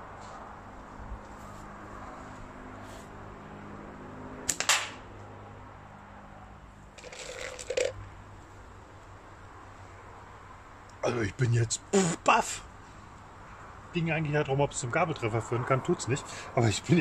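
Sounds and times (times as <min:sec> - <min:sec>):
slingshot bands snapping: 0:04.5 - 0:05.0
balls clattering in plastic tub: 0:07.0 - 0:08.0.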